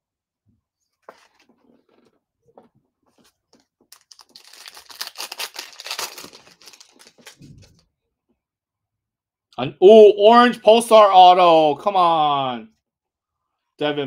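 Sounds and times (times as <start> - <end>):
foil card pack tearing: 3.9 - 7.4.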